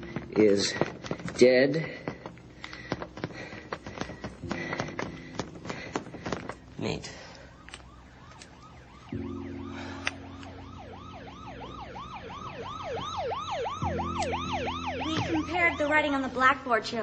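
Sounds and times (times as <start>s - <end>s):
siren yelping: 7.0s - 16.4s.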